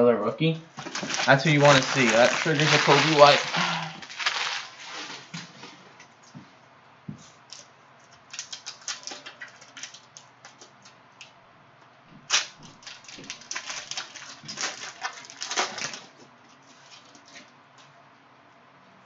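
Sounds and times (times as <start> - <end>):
cellophane wrapper crinkling and tearing: 0.8 - 5.3, 8.3 - 10.3, 12.3 - 16.2.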